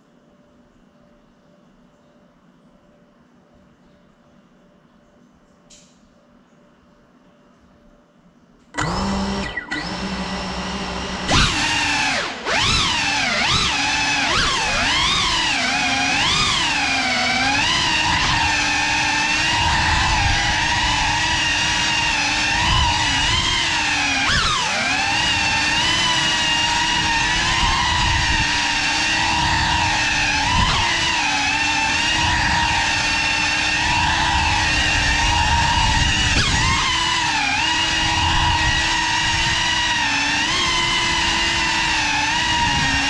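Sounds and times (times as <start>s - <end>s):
drone motors whining: 8.8s - 43.0s.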